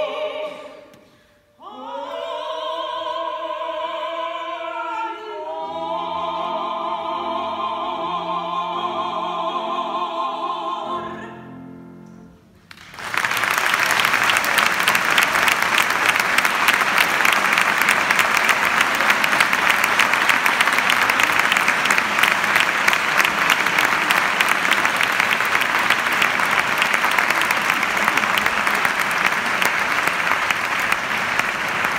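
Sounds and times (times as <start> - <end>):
audience applauding: 12.7 - 31.9.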